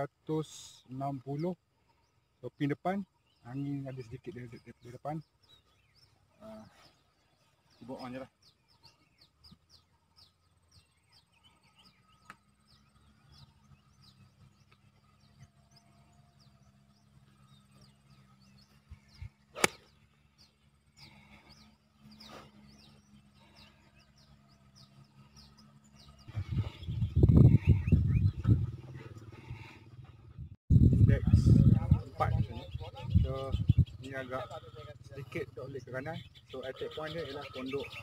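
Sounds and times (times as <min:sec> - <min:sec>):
birds chirping: 0:00.0 - 0:38.0
golf club striking ball: 0:19.5 - 0:20.0.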